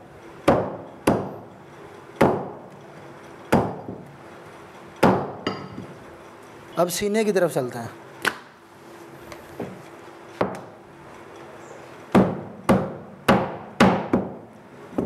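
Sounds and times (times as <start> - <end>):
cleaver chopping on wooden block: 0.5 - 1.4, 2.2 - 2.6, 12.1 - 14.4.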